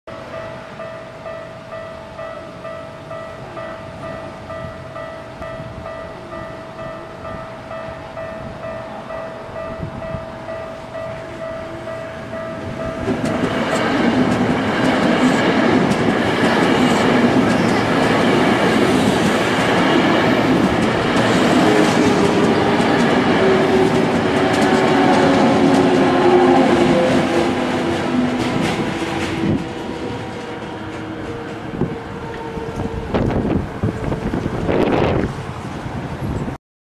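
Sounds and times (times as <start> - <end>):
level-crossing bell ringing: 0.1 - 13.6
train wheels on rails: 0.2 - 36.6.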